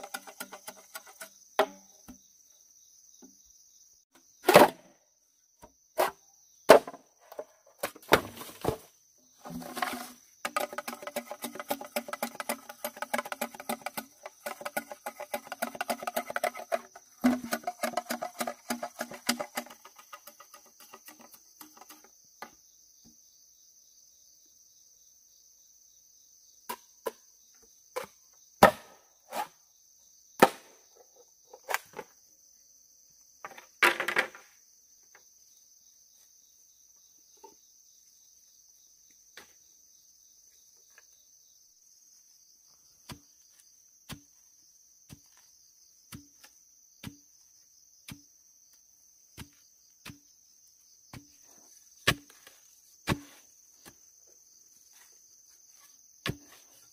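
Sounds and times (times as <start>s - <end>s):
chopping wood blows: 30.4s - 30.8s, 48.1s - 48.3s, 52.0s - 54.0s.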